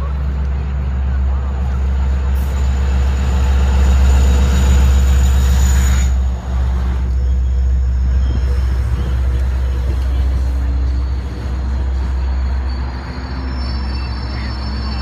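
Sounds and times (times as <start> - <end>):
diesel locomotive engine drone: 0.0 - 15.0
train coaches rumbling by: 0.0 - 15.0.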